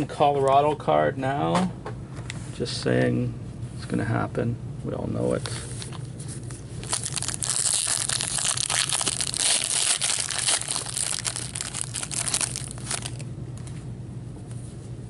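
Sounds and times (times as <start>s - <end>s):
foil wrapper tearing and crumpling: 6.8s - 13.2s.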